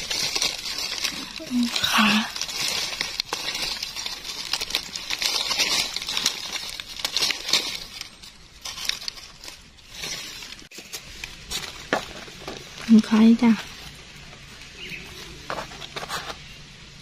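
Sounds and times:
dry leaves crackling and rustling: 0:00.0 - 0:17.0.

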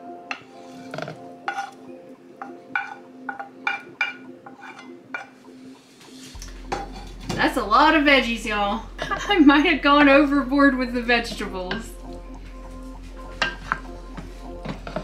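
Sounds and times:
soft background music: 0:00.0 - 0:15.0
utensil scraping a pan: 0:00.4 - 0:01.8, 0:02.8 - 0:05.4, 0:12.7 - 0:15.0.

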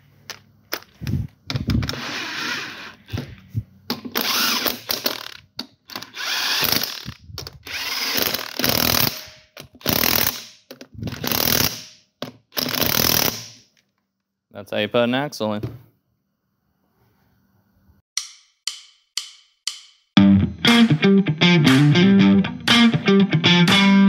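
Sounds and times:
impact wrench hammering lug nuts: 0:03.9 - 0:13.7.

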